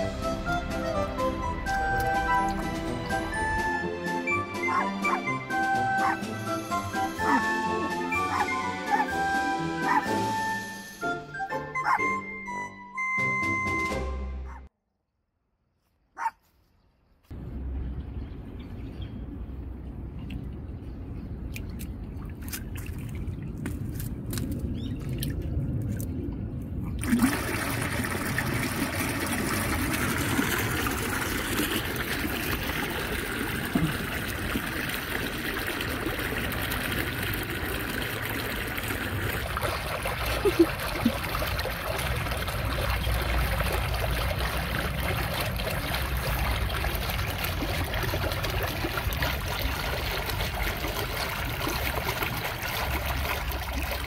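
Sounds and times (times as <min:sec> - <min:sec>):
water trickling over stone steps: 0:20.1 - 0:54.0.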